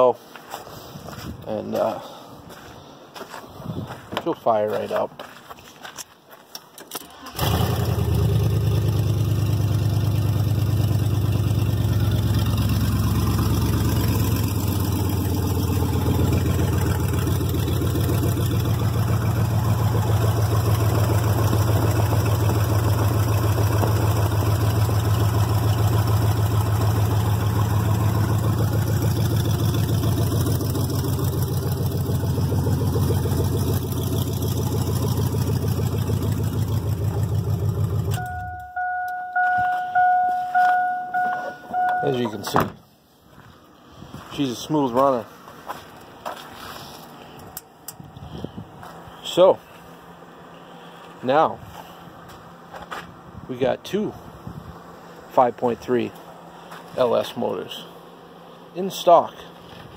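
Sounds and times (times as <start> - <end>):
truck engine idling: 7.1 - 43.8.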